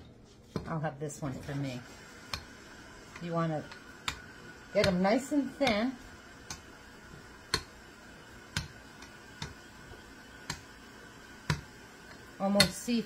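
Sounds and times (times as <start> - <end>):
rolling pin clicking on counter: 4.8 - 5.8, 7.5 - 7.8, 11.4 - 11.7, 12.6 - 12.8.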